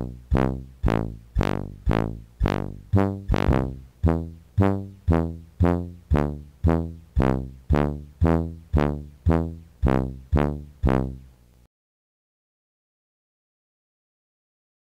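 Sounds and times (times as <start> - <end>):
plucked notes over low bass: 0.0 - 11.2.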